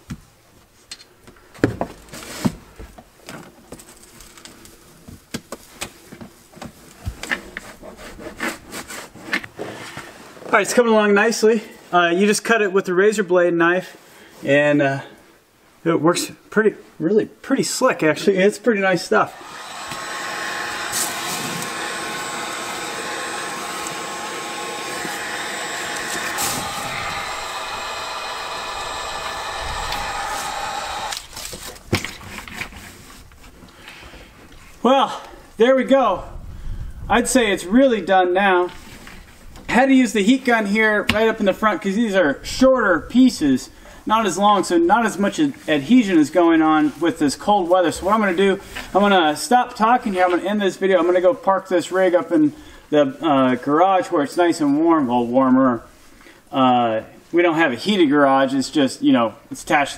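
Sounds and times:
heat gun fan blowing: 19.1 - 31.6.

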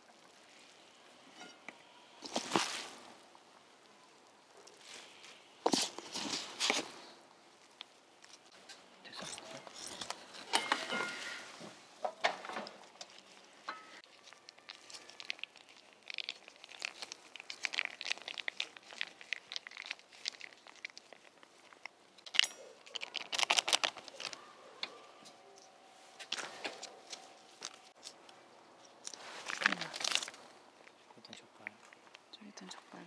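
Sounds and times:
plastic sachet crinkling: 12.9 - 24.5, 25.6 - 31.0.

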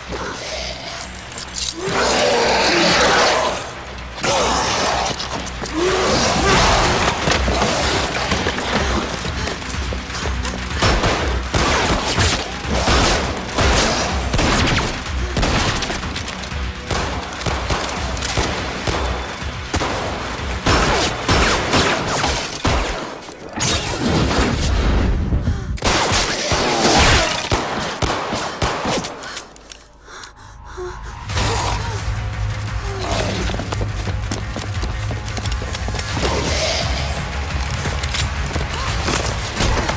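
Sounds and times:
action music score: 0.0 - 39.9
rapid gunfire: 6.4 - 23.2, 25.8 - 29.1.

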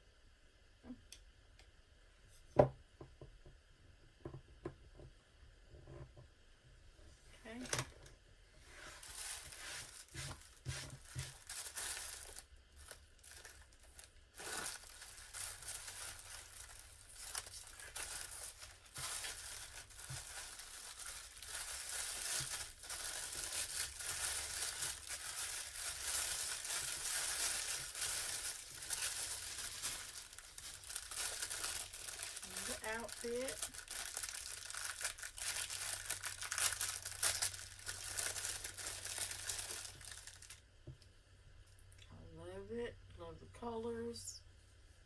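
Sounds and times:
plastic and paper crinkling: 8.7 - 40.6.

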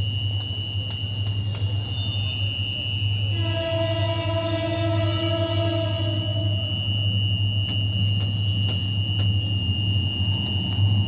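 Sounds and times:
train horn blast: 3.2 - 7.0.

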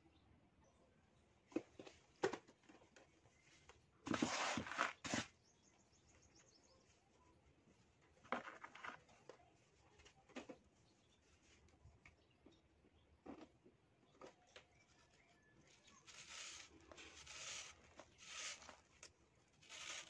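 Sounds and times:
sand scraping a plastic bucket: 4.0 - 5.4, 15.7 - 20.0.

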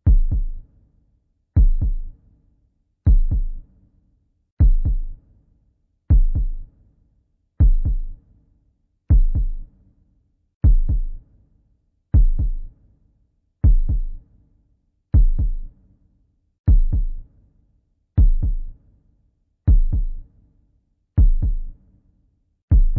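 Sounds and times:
heartbeat thumps: 0.1 - 0.6, 1.6 - 2.1, 3.1 - 3.6, 4.6 - 5.1, 6.1 - 6.6, 7.6 - 8.1, 9.1 - 9.6, 10.6 - 11.2, 12.2 - 12.6, 13.6 - 14.2, 15.2 - 15.6, 16.7 - 17.2, 18.2 - 18.7, 19.7 - 20.2, 21.2 - 21.7.

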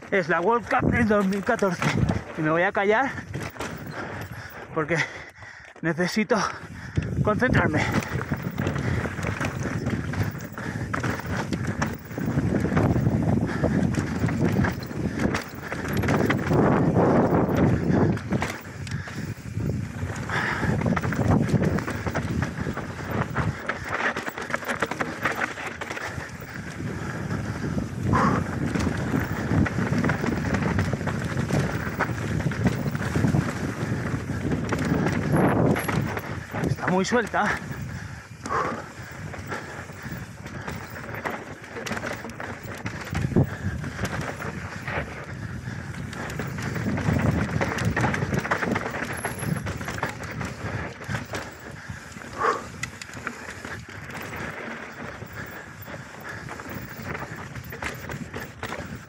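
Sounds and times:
tyre noise on dirt: 0.0 - 5.1, 6.6 - 59.0
wind buffeting microphone: 0.0 - 5.6, 6.5 - 59.0
bike rattling over rocks: 0.0 - 59.0.

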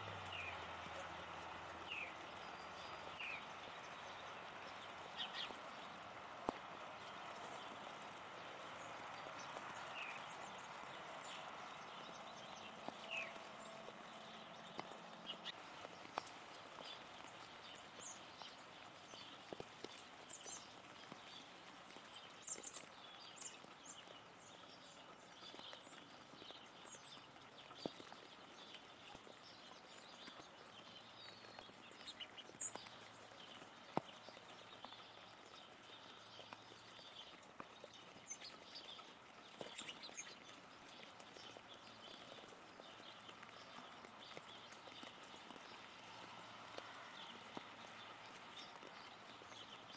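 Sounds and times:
rain hiss: 0.0 - 25.9
water drips: 0.0 - 49.9.

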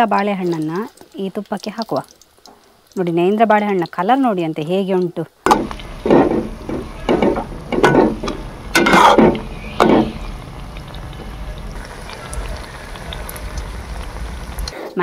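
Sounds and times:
frying sizzle: 0.0 - 15.0
metal ladle scraping a pan: 5.5 - 10.5.

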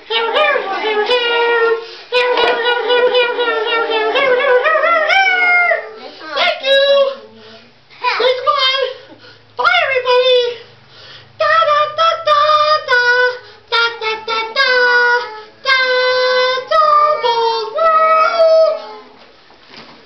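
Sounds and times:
high-pitched voice singing: 0.0 - 7.4, 11.4 - 19.1.

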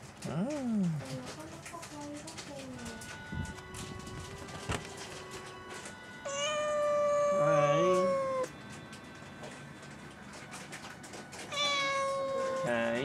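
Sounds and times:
cat meowing: 6.3 - 8.5, 11.5 - 13.0.

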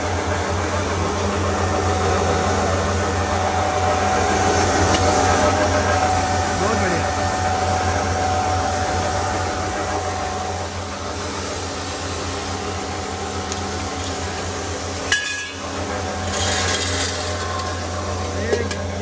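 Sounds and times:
grinding machine motor humming: 0.0 - 19.0
metal buckets clanking: 15.1 - 19.0.

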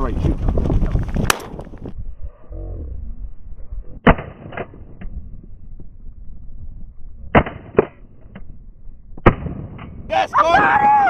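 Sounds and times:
shotgun blasts: 1.2 - 1.6, 4.0 - 4.9, 7.3 - 8.0, 9.2 - 9.9.

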